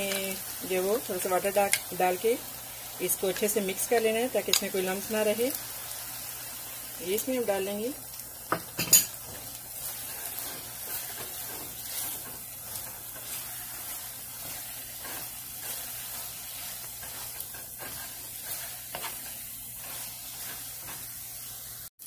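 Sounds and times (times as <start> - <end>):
food sizzling in a pan: 0.0 - 22.0
spatula scraping a pan: 8.6 - 21.7.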